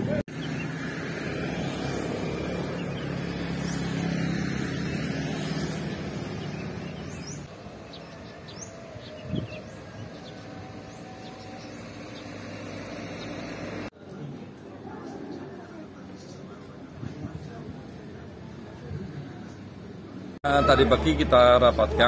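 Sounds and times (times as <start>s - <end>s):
vehicle engine running: 0.0s - 8.2s
bird chirps: 2.6s - 13.6s.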